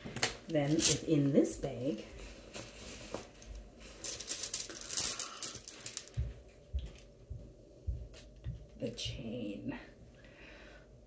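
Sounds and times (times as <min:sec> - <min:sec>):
metal chain jingling: 0:00.6 - 0:01.1, 0:04.0 - 0:06.2.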